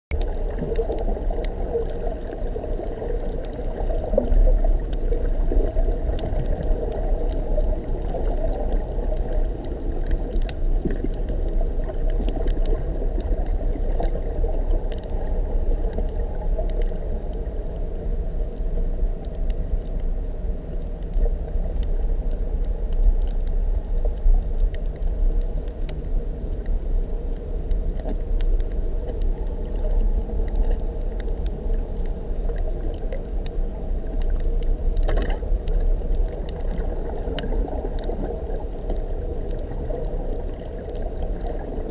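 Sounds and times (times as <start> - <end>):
muffled underwater rumble: 0.1 - 41.9
faint clicks: 0.2 - 41.8.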